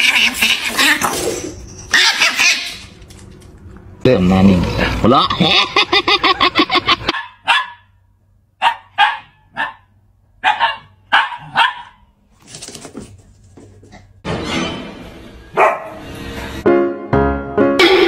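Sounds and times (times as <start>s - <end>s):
dog barking: 7.1s - 7.9s, 8.6s - 12.1s, 15.6s - 16.0s.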